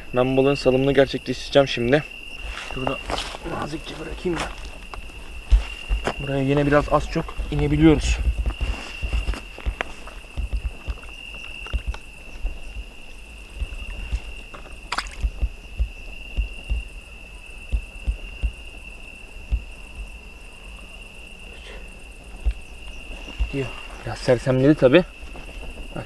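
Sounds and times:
cricket trilling: 0.0s - 26.0s
handling knocks and bumps: 2.7s - 17.1s, 17.7s - 18.9s.

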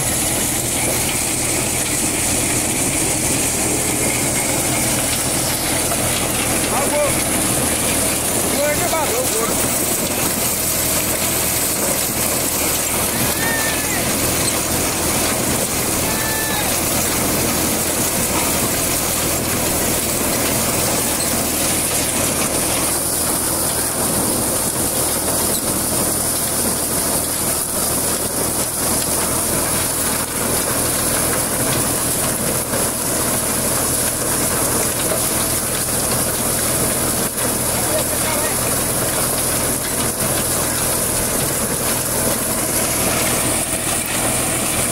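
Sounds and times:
corn thresher drum din: 0.0s - 44.9s
tractor engine hum: 0.0s - 44.9s.

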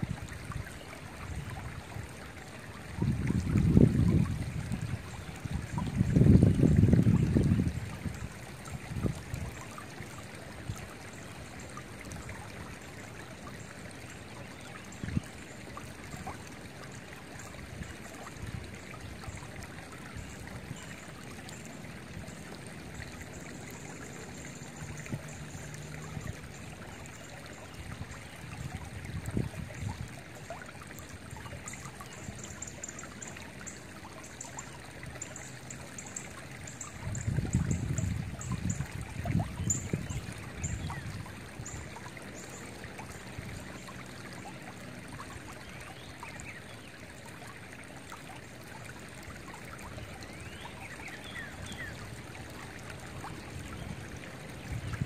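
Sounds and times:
creek water trickling over rocks: 0.0s - 55.0s
wind buffeting microphone: 3.0s - 9.6s, 27.8s - 30.2s, 36.9s - 41.8s, 53.2s - 55.0s.

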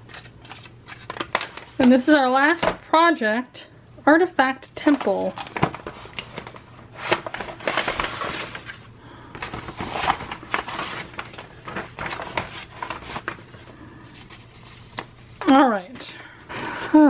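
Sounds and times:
paper rustling and crinkling: 0.0s - 2.2s, 4.8s - 15.6s.

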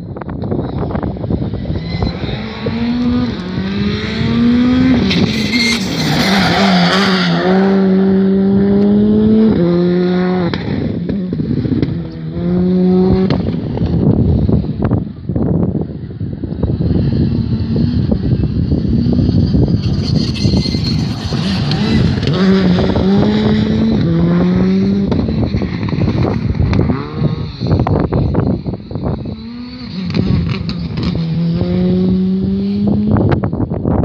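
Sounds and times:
wind rumbling on microphone: 0.0s - 34.0s
rally car engine revving: 0.4s - 15.0s, 16.6s - 34.0s.

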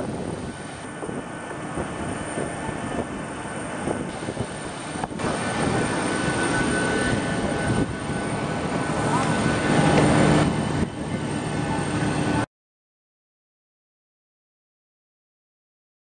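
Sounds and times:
aircraft rumble with high whine: 0.0s - 12.5s.

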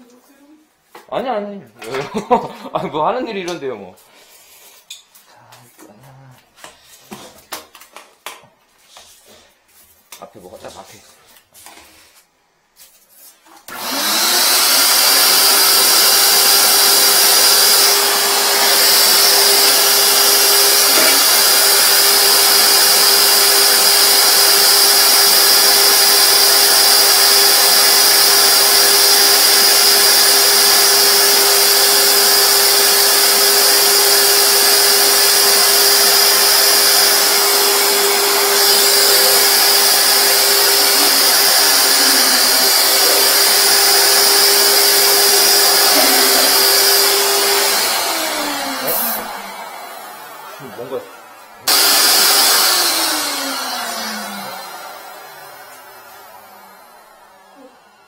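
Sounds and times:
vacuum whining: 13.6s - 58.0s
vacuum sucking water: 13.7s - 57.5s.

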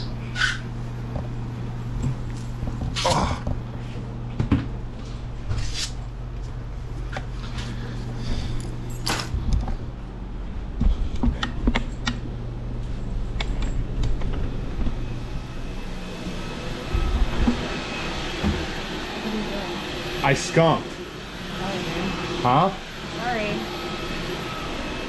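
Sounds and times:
vacuum cleaner motor whine: 12.8s - 25.0s.

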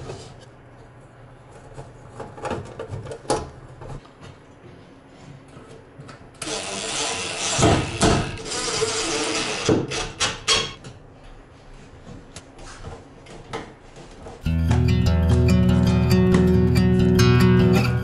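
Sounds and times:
cordless drill driving a screw: 6.4s - 10.0s.

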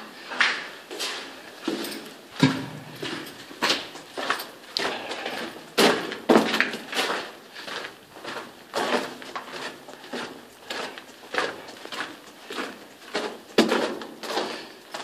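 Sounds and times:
echoing footsteps on rock: 0.3s - 15.0s.

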